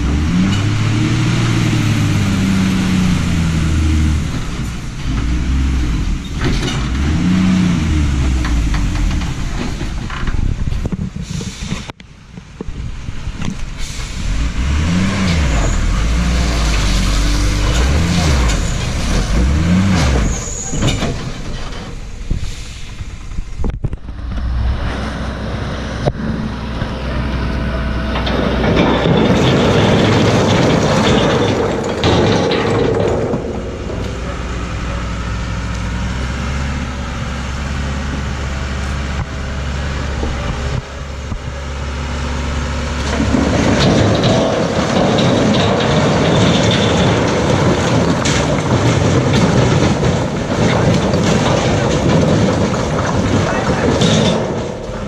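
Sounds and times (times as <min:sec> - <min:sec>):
truck diesel engine revving: 0:00.0 - 0:10.1, 0:13.8 - 0:21.1, 0:24.1 - 0:55.0
stone load sliding out: 0:14.2 - 0:22.8, 0:27.7 - 0:35.2, 0:42.9 - 0:55.0.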